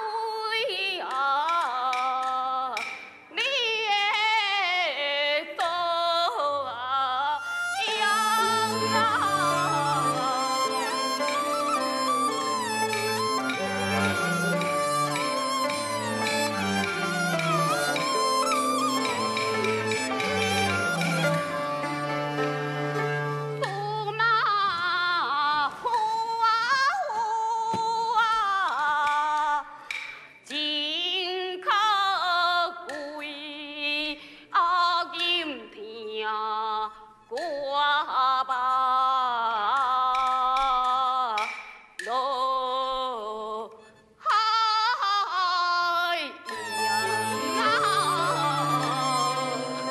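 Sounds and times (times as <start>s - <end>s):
woman singing opera: 0.0s - 13.3s, 23.6s - 29.7s, 30.5s - 49.9s.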